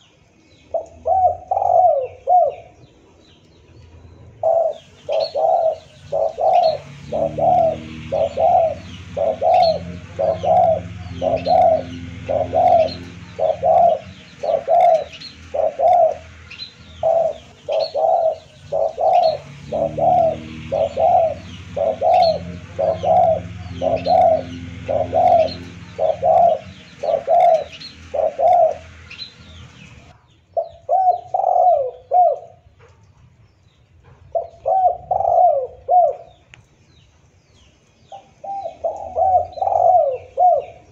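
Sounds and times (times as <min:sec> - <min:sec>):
dove cooing: 0:00.7 - 0:02.8, 0:04.3 - 0:29.2, 0:29.8 - 0:32.7, 0:34.3 - 0:36.4, 0:38.1 - 0:40.9
steady low hum: 0:03.8 - 0:30.2.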